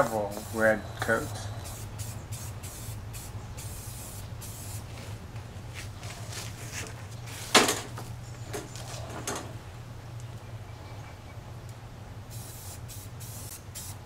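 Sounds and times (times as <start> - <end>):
spray paint can hissing: 0.0 - 4.9, 12.3 - 14.0.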